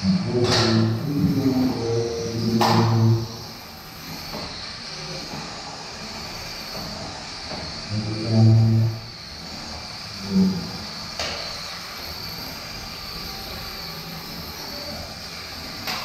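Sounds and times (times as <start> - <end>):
low droning tone: 0.0 - 3.5
high-pitched whine: 0.0 - 16.0.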